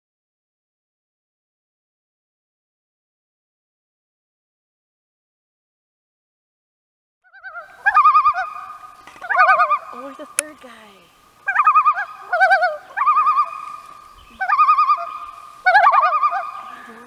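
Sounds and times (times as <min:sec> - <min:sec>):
loons giving tremolo call: 0:07.3 - 0:17.0.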